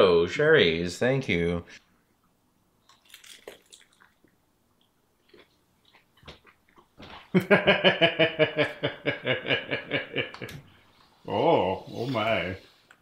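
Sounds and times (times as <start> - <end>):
quiet chewing: 2.2 - 7.0
crunchy bite: 2.8 - 4.4
man chuckling with mouth full: 7.3 - 10.6.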